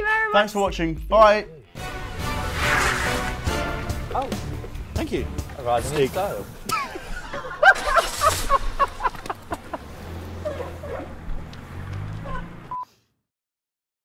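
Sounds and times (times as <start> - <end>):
men laughing hard: 6.5 - 10.5.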